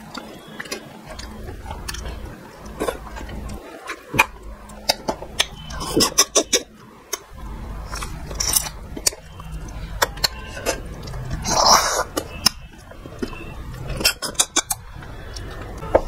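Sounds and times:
chewing and lip smacks: 0.0s - 16.0s.

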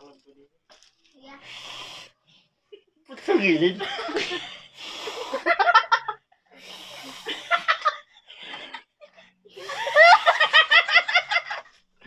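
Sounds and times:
people laughing: 3.1s - 6.2s, 7.1s - 11.7s.

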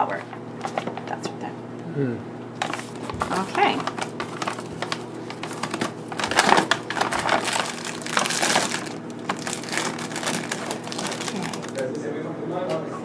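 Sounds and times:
paper and plastic bag crinkling: 0.6s - 1.0s, 2.6s - 12.1s.

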